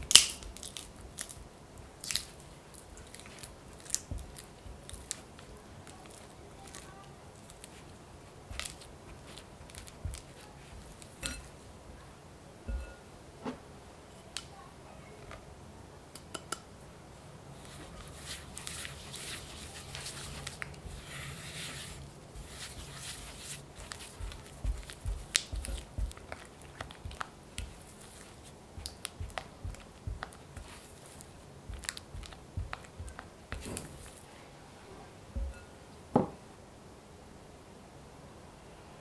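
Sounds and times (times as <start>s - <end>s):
spatula squishing and scraping: 0.0s - 11.6s, 12.7s - 13.0s, 17.6s - 34.3s, 35.4s - 35.7s
spatula tapping on glass: 11.2s - 11.5s, 12.7s - 13.0s, 35.4s - 35.7s.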